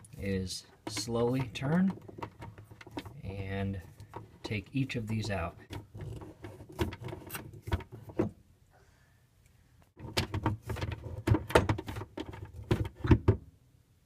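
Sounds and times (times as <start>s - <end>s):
plastic clicks and scraping: 0.0s - 8.3s.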